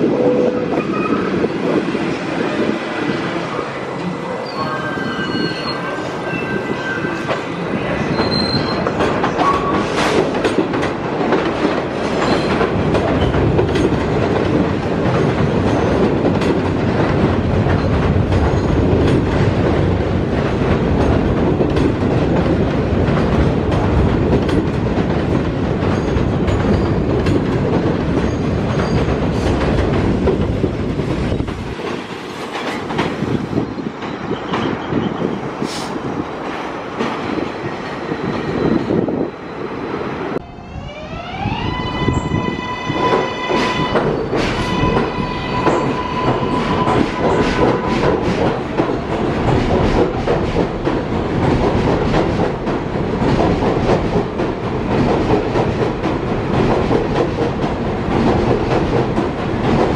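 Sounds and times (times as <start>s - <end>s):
subway train rail noise: 0.0s - 59.9s
high wheel squeals: 4.4s - 7.3s, 8.1s - 8.9s.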